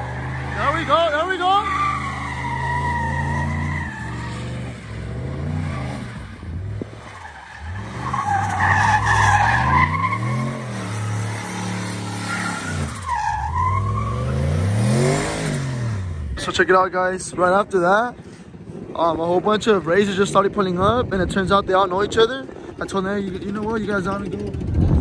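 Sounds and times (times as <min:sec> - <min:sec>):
tyres squealing: 0:00.0 - 0:04.7
engine revving: 0:00.0 - 0:13.0, 0:13.8 - 0:16.4.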